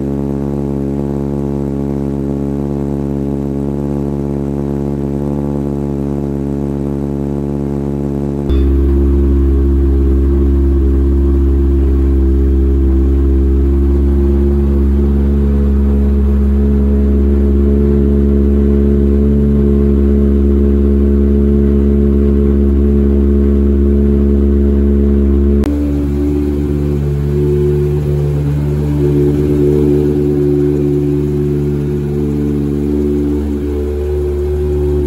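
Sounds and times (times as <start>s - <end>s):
race car engine idling: 8.5s - 35.0s.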